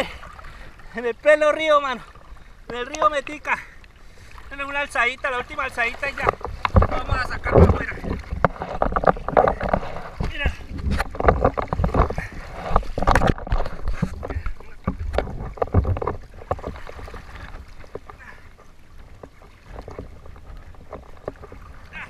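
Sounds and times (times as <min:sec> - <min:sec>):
river water splashing: 0:00.0 - 0:22.0
wind on microphone: 0:06.2 - 0:18.3.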